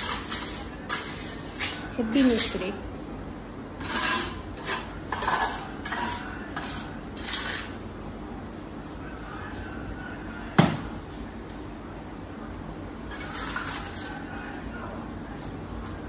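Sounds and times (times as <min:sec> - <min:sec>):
hard objects scraping and clinking: 0:00.0 - 0:02.8, 0:03.8 - 0:07.8.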